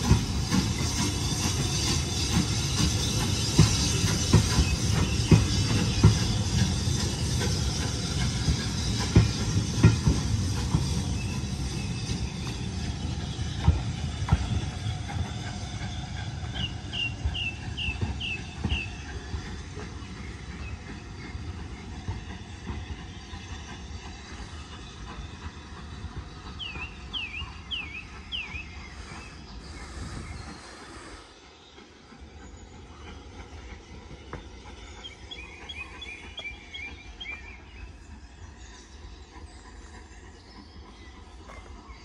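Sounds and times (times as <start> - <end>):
train wheel clicks: 0.0 - 31.2
steam train rumbling: 0.0 - 42.0.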